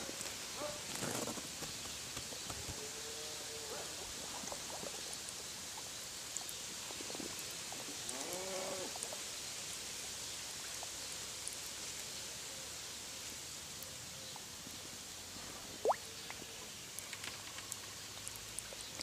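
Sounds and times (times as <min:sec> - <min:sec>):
steady hiss: 0:00.0 - 0:19.0
faint ticks: 0:15.9 - 0:19.0.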